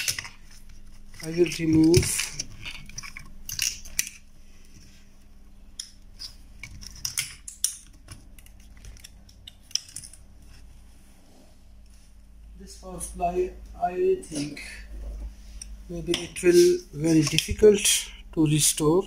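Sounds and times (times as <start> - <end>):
clicks and clatter of handled metal parts: 0.0 - 4.3, 5.8 - 10.5, 17.0 - 17.7.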